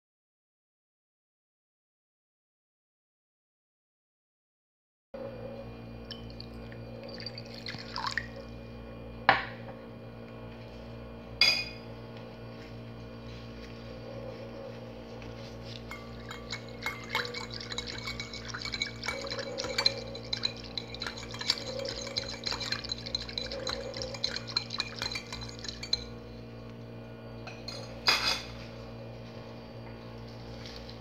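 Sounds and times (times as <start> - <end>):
liquid sloshing: 6.2 - 8.4, 15.6 - 26.2
whisk clinking against bowl: 15.7 - 26.2.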